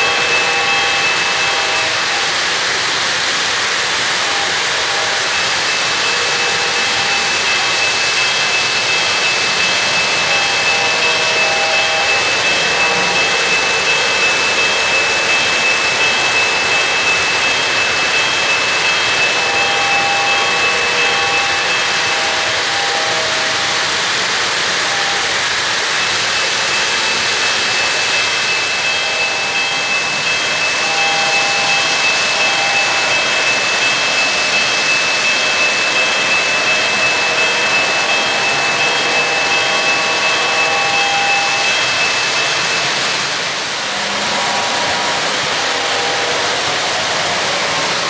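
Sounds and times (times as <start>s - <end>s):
high whine: 0.0s - 48.0s
model train wheels on rails: 0.0s - 48.0s.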